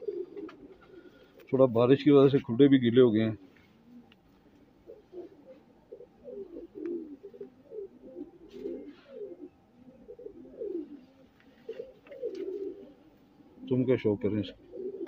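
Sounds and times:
pigeons cooing: 0.0 - 2.3, 3.0 - 15.0.

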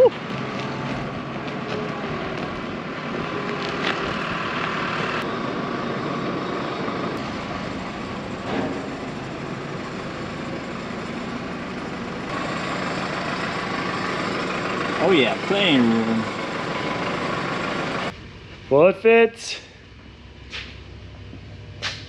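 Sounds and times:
cart rumbling as it rolls: 0.0 - 18.7
engine running at low speed: 0.0 - 22.0.

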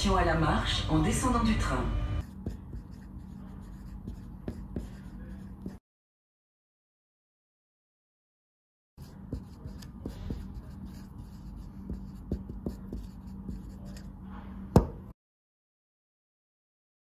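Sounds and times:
steady low hum: 0.0 - 5.8, 9.0 - 15.1
marker writing on whiteboard: 2.2 - 5.8, 9.0 - 14.9.

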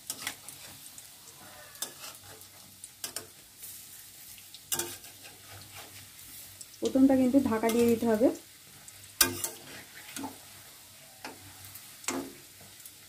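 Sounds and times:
fritters sizzling in oil: 0.0 - 13.0
spatula scraping metal pan: 1.7 - 3.3, 4.7 - 6.2, 9.2 - 10.4.

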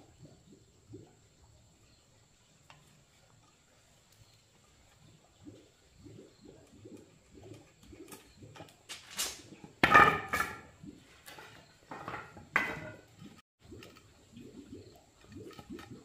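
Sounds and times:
wooden boards clattering on concrete: 8.9 - 13.1.

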